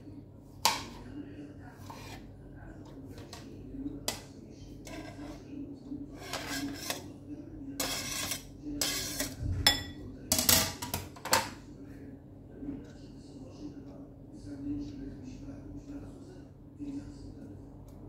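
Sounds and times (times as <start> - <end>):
knife scraping cutting board: 1.7 - 2.3, 4.8 - 5.4, 6.1 - 7.1, 7.8 - 9.4
glass bowl clink: 9.7 - 10.0.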